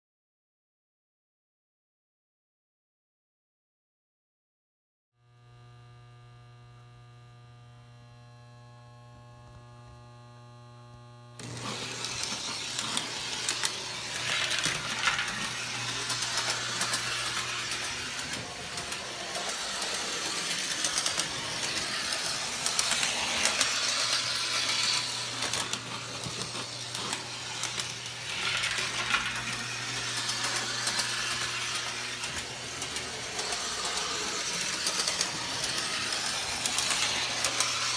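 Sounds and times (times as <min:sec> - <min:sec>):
electrical hum: 0:05.2 - 0:37.9
model trolley whirring and rattling: 0:11.4 - 0:37.9
wheels clicking on rails: 0:11.4 - 0:37.9.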